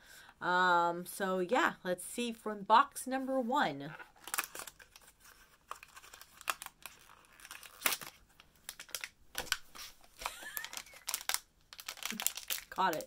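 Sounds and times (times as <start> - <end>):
cardboard packaging crinkling and tearing: 3.9 - 13.0.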